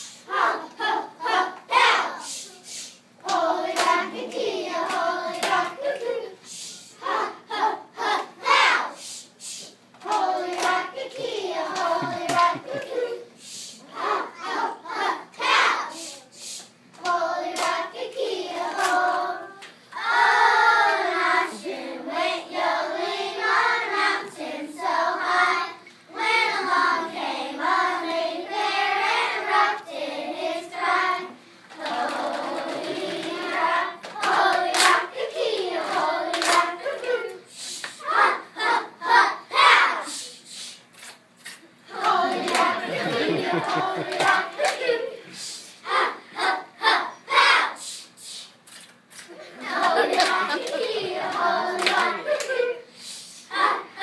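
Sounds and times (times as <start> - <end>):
hand claps: 10.0 - 13.0, 34.0 - 35.0, 35.9 - 36.7, 41.4 - 44.8, 48.8 - 52.6.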